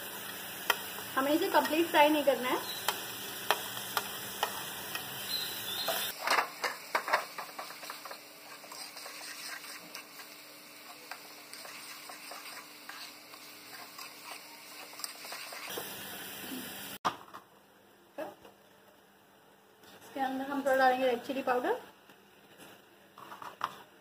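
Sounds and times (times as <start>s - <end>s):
vegetables sizzling in butter: 0.0s - 17.0s.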